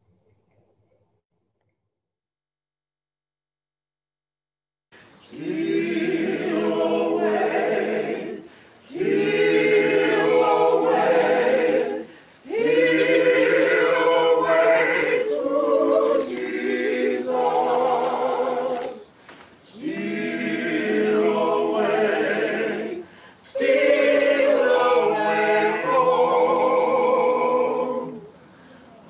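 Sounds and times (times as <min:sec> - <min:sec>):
mixed choir singing a cappella: 0:05.1 - 0:28.5.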